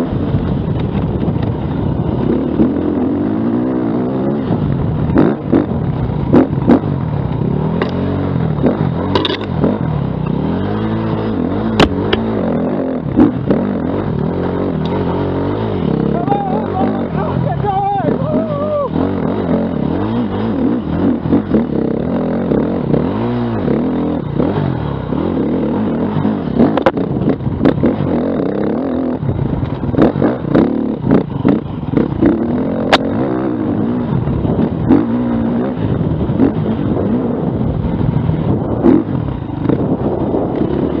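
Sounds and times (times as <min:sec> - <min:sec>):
dirt bike engine revving: 0:00.0 - 0:41.0
sharp knocks and clatter: 0:09.0 - 0:10.4, 0:11.6 - 0:12.3.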